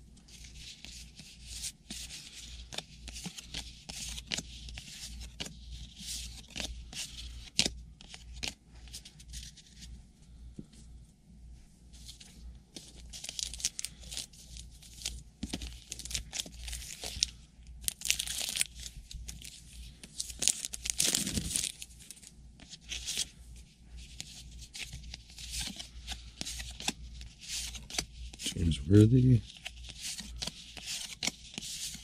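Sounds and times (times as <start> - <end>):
wrappers tearing and crinkling: 17.8 - 19.4, 20.2 - 21.9.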